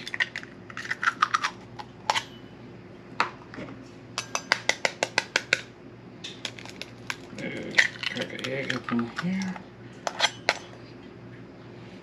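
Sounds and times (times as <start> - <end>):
fork clinking on eggshell and plate: 4.2 - 5.6, 6.3 - 10.8.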